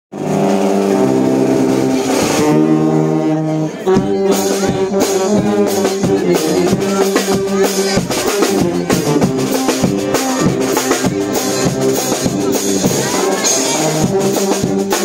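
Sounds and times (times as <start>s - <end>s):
bass drum: 0.1s - 15.0s
brass band playing: 0.1s - 15.0s
trombone and saxophone: 0.1s - 15.0s
snare drum: 3.9s - 15.0s.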